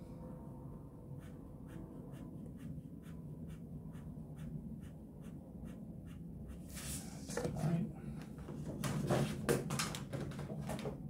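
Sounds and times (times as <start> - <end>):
pen scratching on paper: 1.2 - 7.0.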